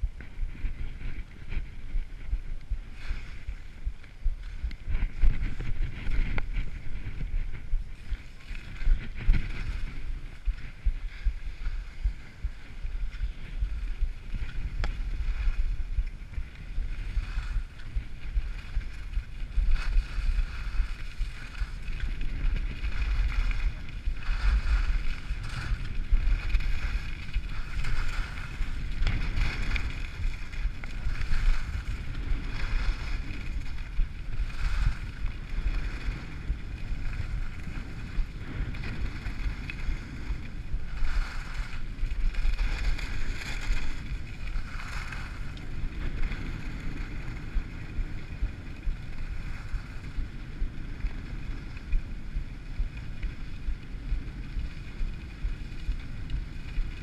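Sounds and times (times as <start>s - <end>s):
skis scraping over snow: 0.0s - 57.0s
wind buffeting microphone: 0.0s - 57.0s.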